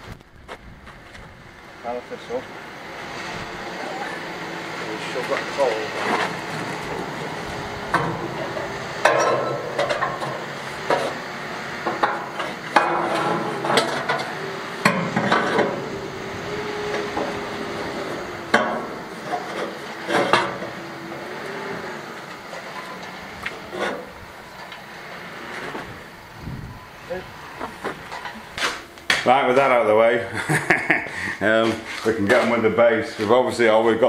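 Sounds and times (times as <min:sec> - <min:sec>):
metallic clanks and knocks: 0:07.9 - 0:11.2, 0:11.8 - 0:15.8, 0:18.5 - 0:20.7.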